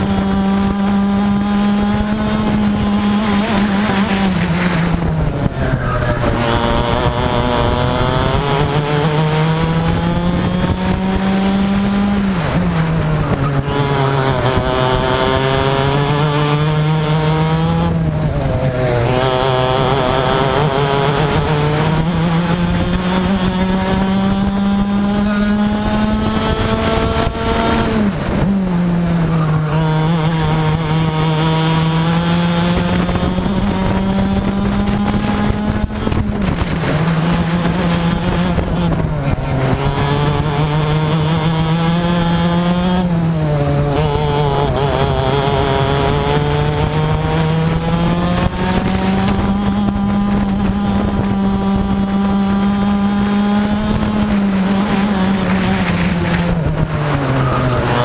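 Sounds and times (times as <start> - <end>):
kart engine at full throttle: 0.0 - 58.0.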